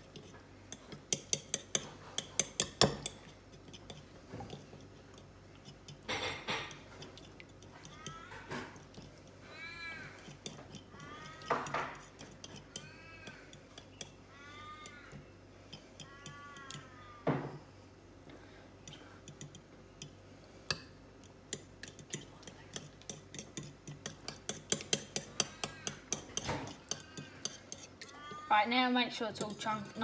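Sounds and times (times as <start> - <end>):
fork beating eggs in bowl: 0.0 - 17.0, 18.8 - 30.0.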